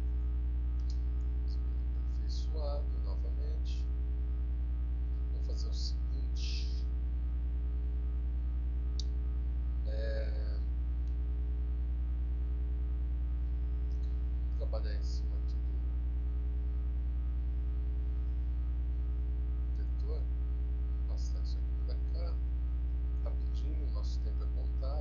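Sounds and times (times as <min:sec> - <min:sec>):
electrical mains hum: 0:00.0 - 0:25.0.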